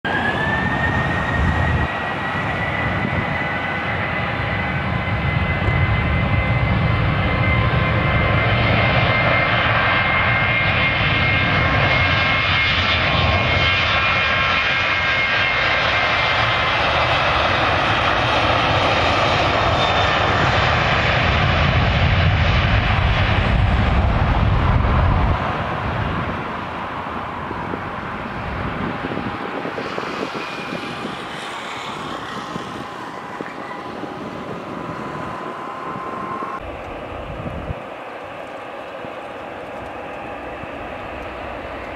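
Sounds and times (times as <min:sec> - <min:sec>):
jet engine fan whine: 0:00.0 - 0:41.9
loud jet engine noise: 0:00.0 - 0:41.9.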